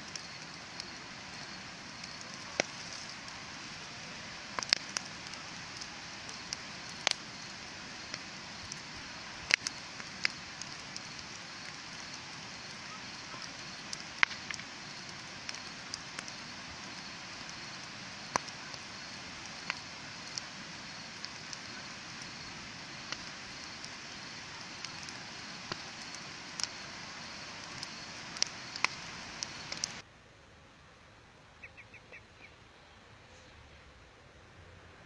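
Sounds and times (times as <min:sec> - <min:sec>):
bonfire hissing: 0:00.0 - 0:30.1
fire crackles and pops: 0:00.0 - 0:30.1.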